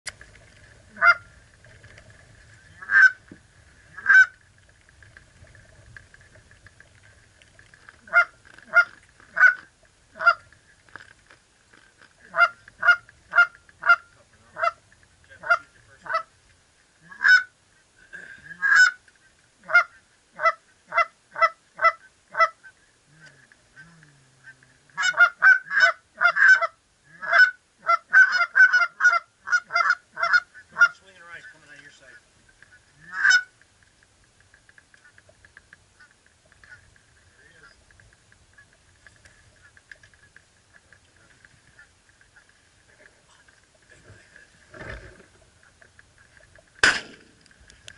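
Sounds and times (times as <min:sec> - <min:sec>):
geese honking: 0:00.9 - 0:01.4, 0:02.6 - 0:04.4, 0:08.0 - 0:10.8, 0:12.2 - 0:16.4, 0:17.0 - 0:17.6, 0:18.6 - 0:33.6, 0:35.9 - 0:37.9, 0:38.5 - 0:43.9.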